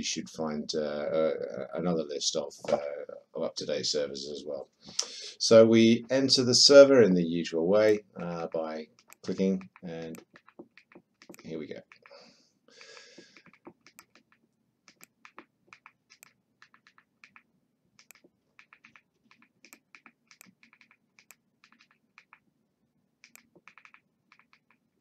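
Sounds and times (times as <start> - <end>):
remote control buttons clicking: 8.2 - 12.2, 13.2 - 22.4, 23.2 - 24.8.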